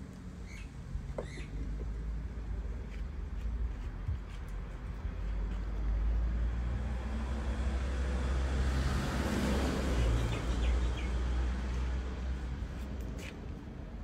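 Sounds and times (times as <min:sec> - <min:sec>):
road traffic rumble: 0:00.0 - 0:14.0
vehicle passing: 0:05.0 - 0:13.3.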